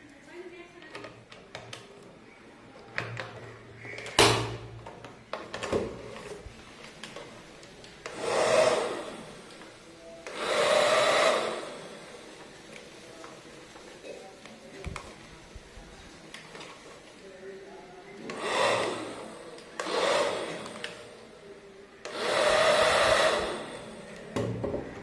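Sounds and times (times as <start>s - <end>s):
toy fan motor whirring: 22.1s - 24.0s.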